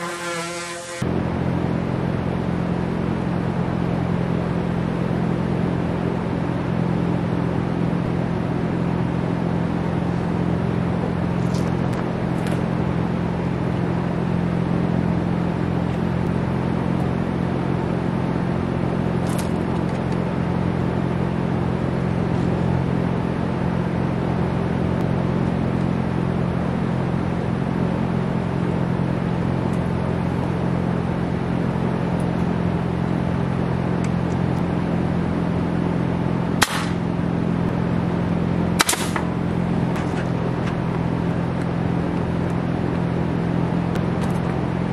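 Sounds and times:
pneumatic nailer firing: 0.0s - 1.0s, 36.6s - 37.0s, 38.8s - 39.3s
air compressor humming: 0.0s - 1.1s.

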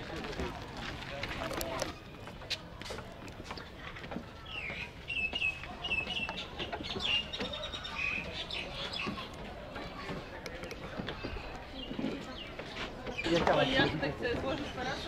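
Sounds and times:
outdoor background noise: 0.0s - 15.0s
bird chirping: 4.4s - 9.3s.

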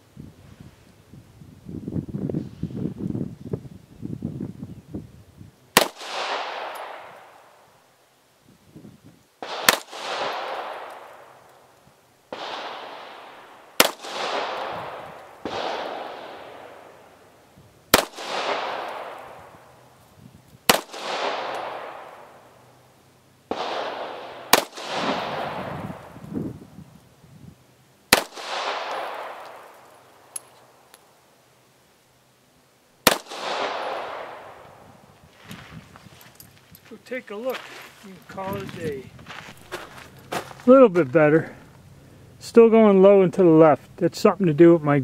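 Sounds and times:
pistol shots with echo: 5.8s - 7.5s, 9.4s - 11.5s, 12.3s - 17.1s, 17.9s - 19.7s, 20.7s - 22.6s, 23.5s - 26.1s, 28.1s - 30.4s, 33.0s - 34.8s.

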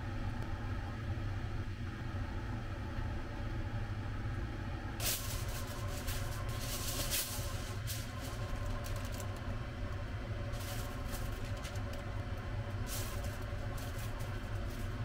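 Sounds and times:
steady low hum: 0.0s - 15.0s
aluminium foil crinkling: 5.0s - 9.6s, 10.5s - 15.0s.

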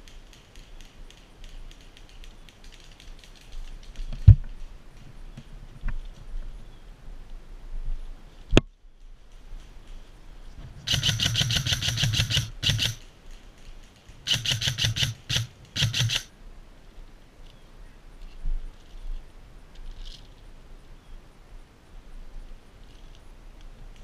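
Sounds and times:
airsoft gun full-auto bursts: 10.8s - 13.1s, 14.2s - 16.3s
sharp click: 10.9s - 13.0s, 14.3s - 16.3s.

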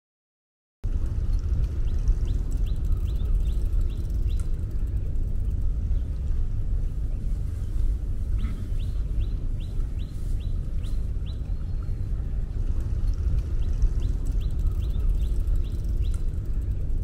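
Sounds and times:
low rumble: 0.8s - 17.0s
bird chirping: 1.4s - 6.2s, 8.4s - 12.4s, 13.0s - 17.0s.

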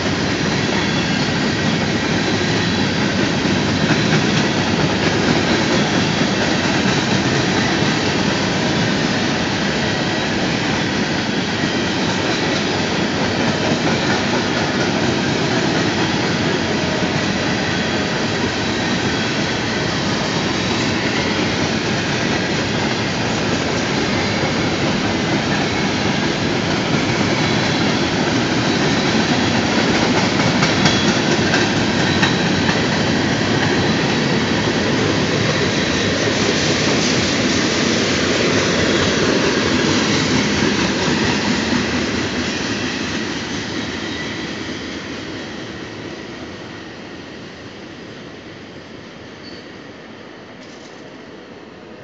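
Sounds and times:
train wheels rolling on rails: 0.0s - 52.0s
faint wheel squeal: 49.4s - 49.8s.

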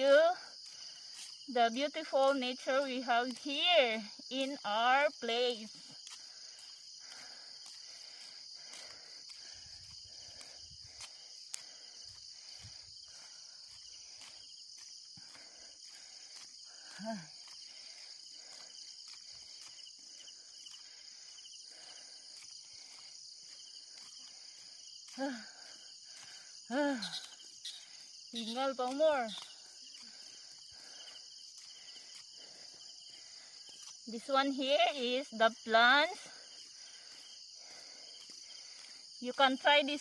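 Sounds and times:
insects chirring: 0.0s - 40.0s.

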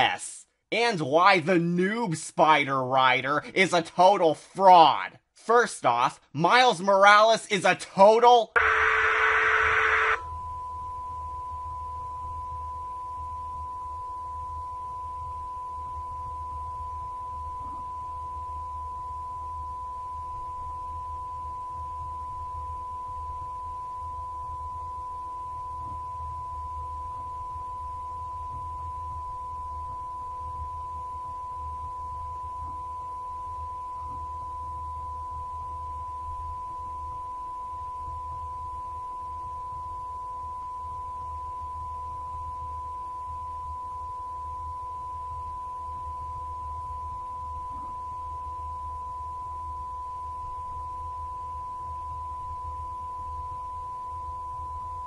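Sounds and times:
high-pitched test tone: 8.6s - 10.2s
tv static burst: 8.6s - 10.2s
faint low hum: 8.6s - 55.0s.

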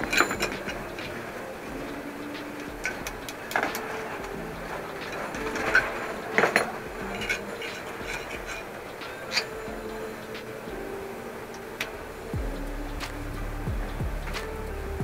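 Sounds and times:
metal tool clinking and scraping: 5.0s - 8.7s, 9.3s - 9.6s.

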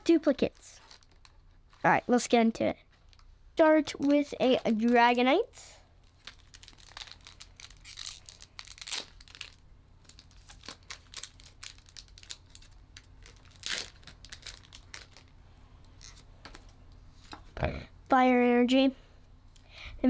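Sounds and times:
foil wrapper crinkling and tearing: 0.4s - 1.8s, 6.0s - 15.3s.

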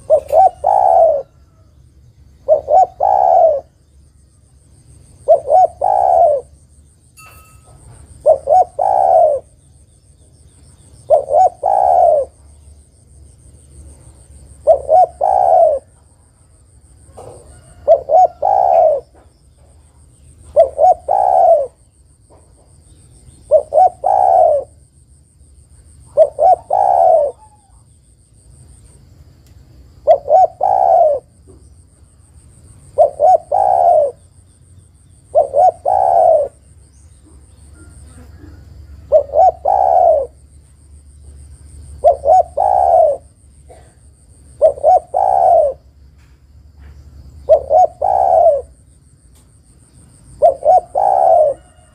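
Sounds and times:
dove cooing: 0.0s - 1.8s, 2.4s - 3.8s, 5.2s - 6.6s, 8.0s - 9.7s, 11.0s - 12.5s, 14.4s - 16.1s, 17.1s - 19.3s, 20.4s - 22.4s, 23.4s - 24.8s, 26.0s - 27.8s, 30.0s - 31.5s, 32.9s - 34.3s, 35.3s - 40.5s, 41.8s - 46.0s, 47.4s - 48.8s, 50.3s - 51.9s.

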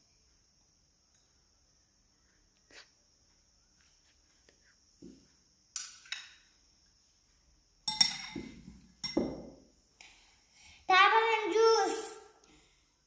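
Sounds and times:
metal spoon clinking glass bowl: 7.8s - 9.4s.

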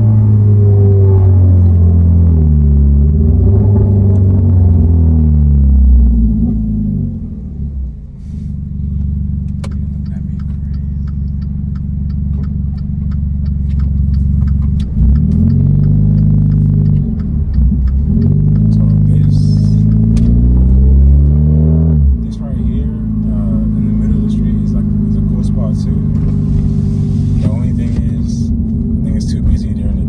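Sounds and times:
car exhaust drone: 0.0s - 30.0s
light regular ticking: 8.8s - 21.3s.

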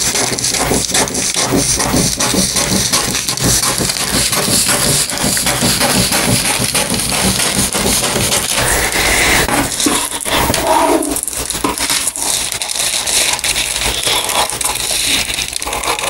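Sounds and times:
scissors snipping paper: 11.2s - 16.0s.

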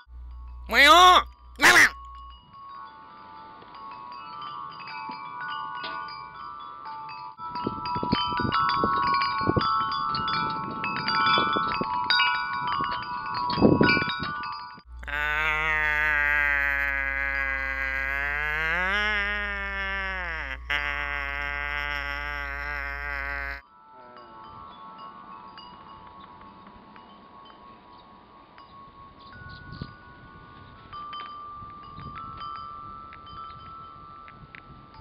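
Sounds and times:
metal wind chime ringing: 0.0s - 15.0s, 23.6s - 35.0s
wind rumbling on microphone: 7.4s - 15.0s, 24.4s - 35.0s.

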